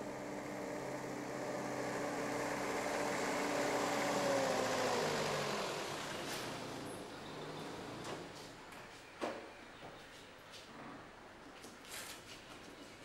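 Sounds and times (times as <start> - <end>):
vehicle engine driving past: 0.0 - 8.4.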